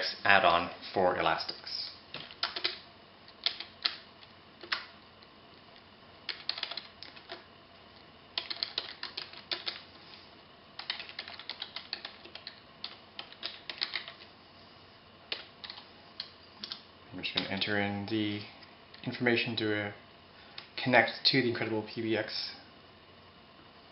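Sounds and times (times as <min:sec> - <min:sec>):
computer keyboard typing: 0:02.2 - 0:04.0, 0:04.6 - 0:04.9, 0:06.3 - 0:07.4, 0:08.4 - 0:09.9, 0:10.8 - 0:14.3, 0:15.3 - 0:16.8.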